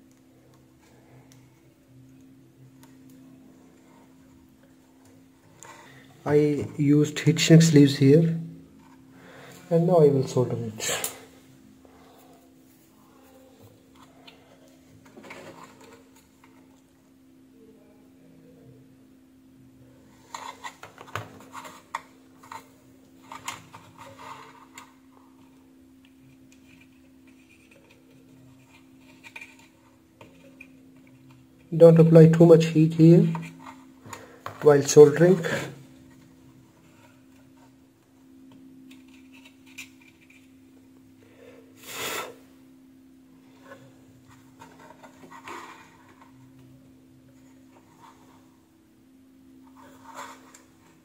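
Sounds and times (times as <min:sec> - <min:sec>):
steady low hum: 0:00.0 - 0:51.0
short hiss: 0:41.8 - 0:42.4.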